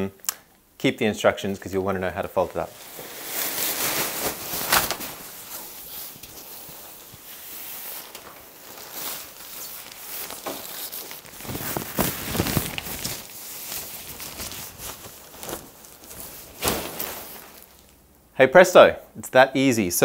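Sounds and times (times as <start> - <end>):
tent fabric rustling and swishing: 2.7 - 18.0.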